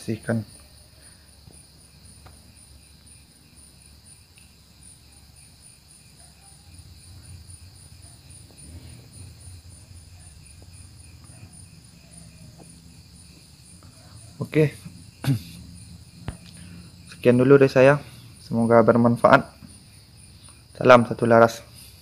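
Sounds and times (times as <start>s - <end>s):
crickets chirping: 0.0s - 22.0s.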